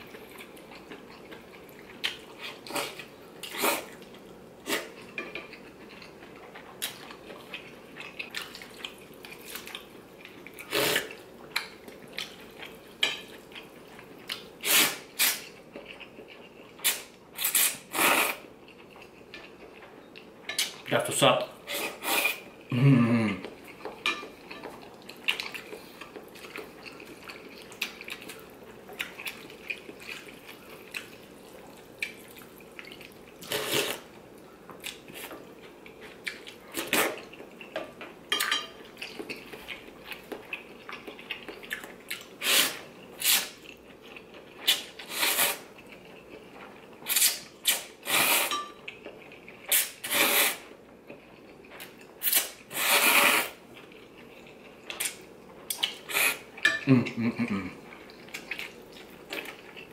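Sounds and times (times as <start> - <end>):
quiet eating noises: 0.0 - 59.9
person slurping noodles: 10.7 - 11.2, 16.8 - 18.4, 21.6 - 23.4, 33.4 - 34.0, 42.4 - 43.5, 44.7 - 45.7, 47.1 - 48.5, 49.7 - 50.7, 52.2 - 53.6, 56.1 - 56.5.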